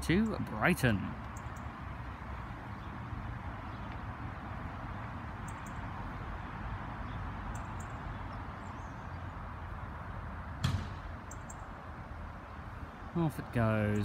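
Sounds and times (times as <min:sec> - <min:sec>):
sharp knock: 0:10.6 - 0:11.0.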